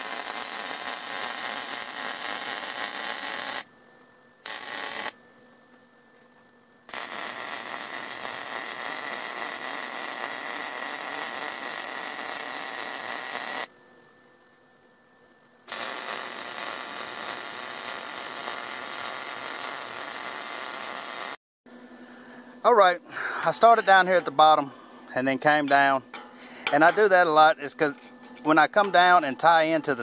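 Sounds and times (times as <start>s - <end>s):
welding arc crackling: 0.0s - 3.7s, 4.4s - 5.2s, 6.9s - 13.7s, 15.7s - 21.4s.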